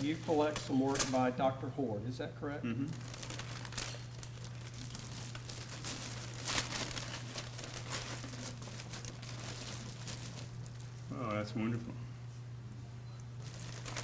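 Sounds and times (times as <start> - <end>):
plastic wrapping crinkling: 0.0 - 1.4, 2.9 - 11.4, 13.4 - 14.0
steady low hum: 0.0 - 14.0.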